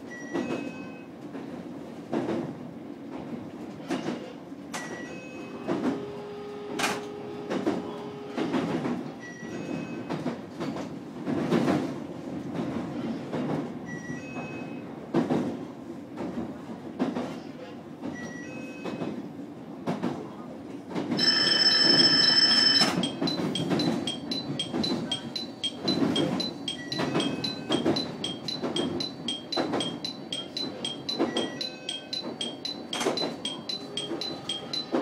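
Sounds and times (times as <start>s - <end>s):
electronic warning tone: 21.2s - 35.0s
train running rumble: 21.2s - 35.0s.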